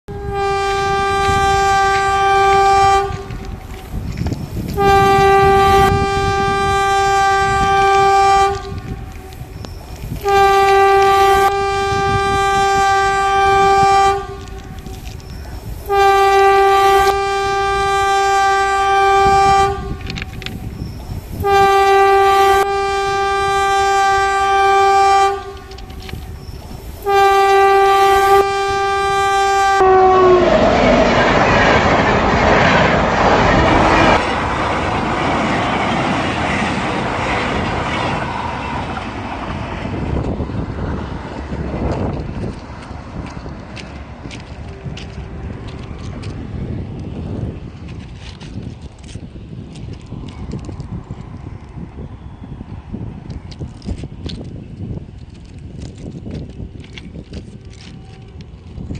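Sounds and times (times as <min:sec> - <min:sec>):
train horn long blasts: 0:00.1 - 0:35.9, 0:43.2 - 0:47.5, 0:55.4 - 0:58.9.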